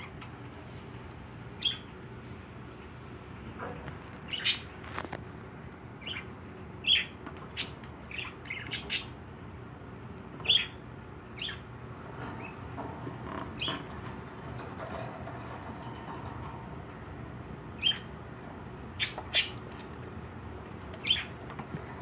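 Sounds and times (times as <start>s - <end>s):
budgerigars chirping and squawking: 1.6s - 1.9s, 4.2s - 4.8s, 6.0s - 9.2s, 10.4s - 11.7s, 13.3s - 14.0s, 17.8s - 18.2s, 19.0s - 19.7s, 21.0s - 21.4s.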